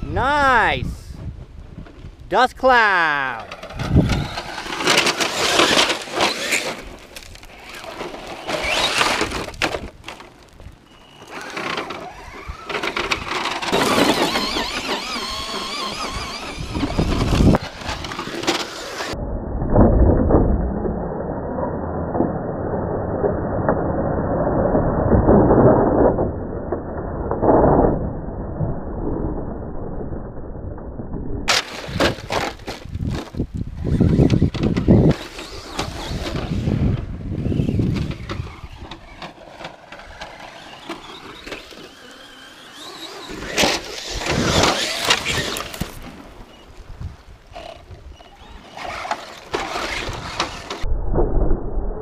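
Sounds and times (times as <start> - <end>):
toy truck crashing and tumbling: 3.4 - 19.2, 31.5 - 46.6, 47.5 - 50.9
electric motor whine: 11.0 - 19.2, 33.9 - 46.7.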